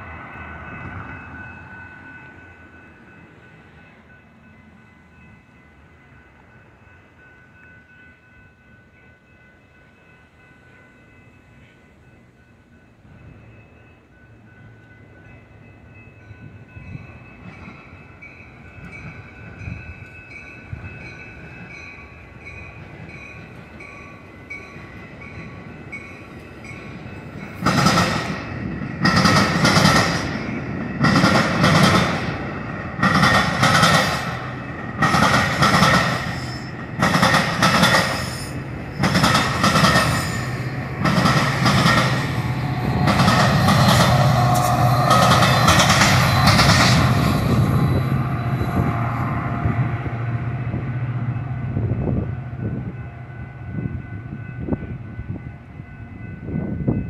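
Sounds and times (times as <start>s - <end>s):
crossing bell ringing: 0.0s - 57.0s
train wheels rumbling and clattering: 16.5s - 57.0s.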